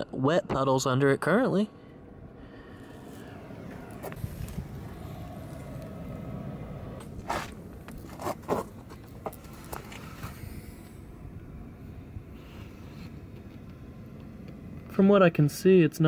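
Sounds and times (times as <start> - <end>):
low rumble: 1.2 - 15.0
footsteps on gritty concrete: 7.0 - 10.4.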